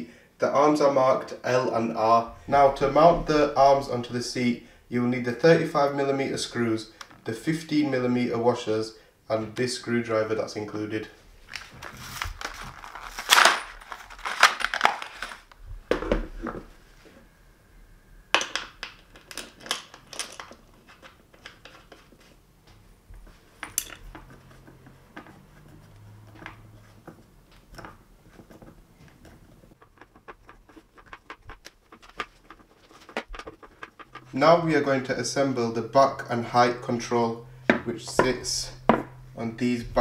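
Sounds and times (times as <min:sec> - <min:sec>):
metal screws clinking: 0:23.6 - 0:24.2.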